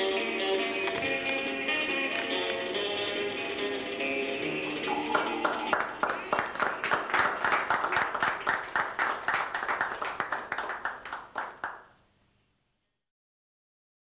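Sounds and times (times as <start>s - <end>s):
audience hand clapping: 4.8s - 12.0s.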